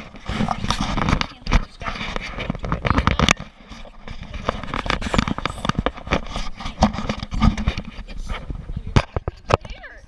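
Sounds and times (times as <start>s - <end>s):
camera handling noise: 4.1s - 8.0s.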